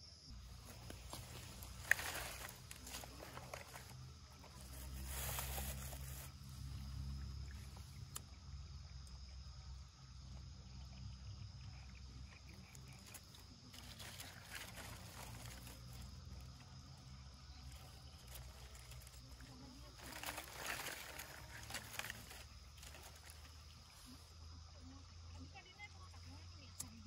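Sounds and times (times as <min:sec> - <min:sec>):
sticks and grass crackling: 0:00.3 - 0:08.2, 0:12.4 - 0:24.3.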